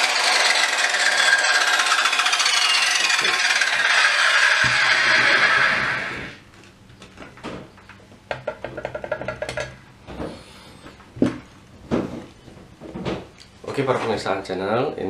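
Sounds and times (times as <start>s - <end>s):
circular saw motor winding down: 0.0s - 6.4s.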